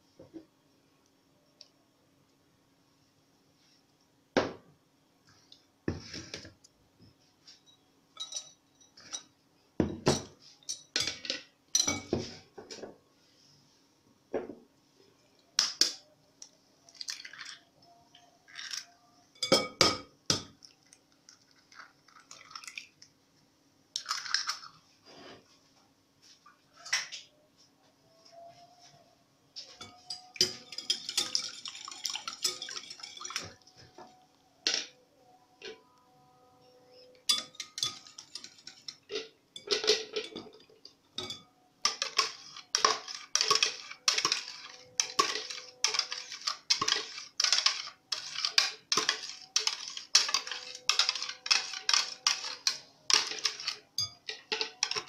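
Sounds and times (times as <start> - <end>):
wire whisk beating eggs: 29.8 - 33.6, 37.2 - 40.4, 41.2 - 55.0.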